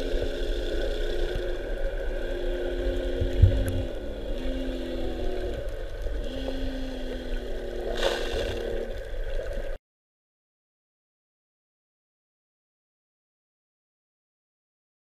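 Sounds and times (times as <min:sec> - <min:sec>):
shipboard machinery rumbling: 0:00.0 - 0:09.1.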